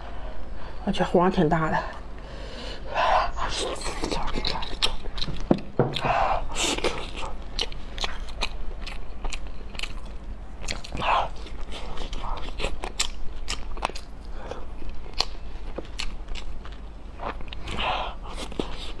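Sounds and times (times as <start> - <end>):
chewing crab with crunches: 3.4 - 19.0.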